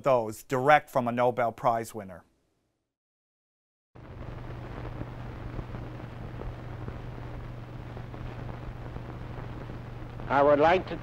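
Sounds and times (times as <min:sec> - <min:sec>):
constant hiss: 0:04.0 - 0:11.0
film crackles: 0:04.0 - 0:11.0
low hum: 0:04.0 - 0:11.0.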